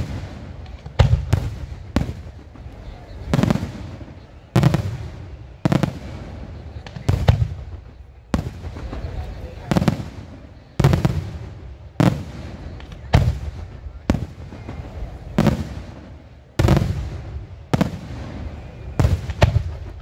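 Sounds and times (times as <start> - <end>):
fireworks bangs: 0.0 - 20.0.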